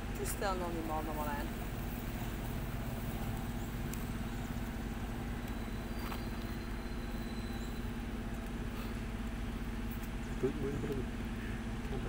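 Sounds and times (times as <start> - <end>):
engine idling hum: 0.0 - 12.0
faint high whistle: 5.4 - 8.0.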